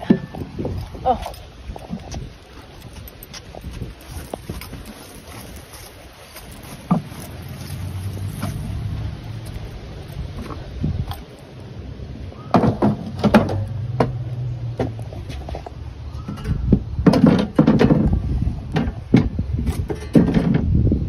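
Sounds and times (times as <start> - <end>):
footsteps on wooden boards: 0.0 - 8.9.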